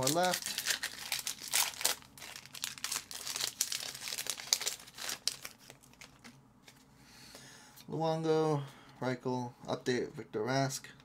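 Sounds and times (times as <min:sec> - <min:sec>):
foil wrapper crinkling: 0:00.0 - 0:06.8.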